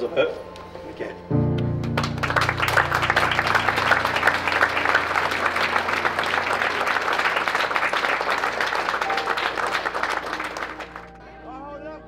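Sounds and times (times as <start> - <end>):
audience applauding: 1.8 - 11.1.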